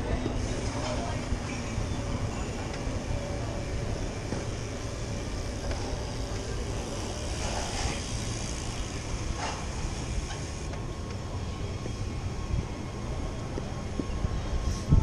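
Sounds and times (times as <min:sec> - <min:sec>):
bike rolling over paving: 0:04.2 - 0:10.8
wind on microphone: 0:13.6 - 0:15.0.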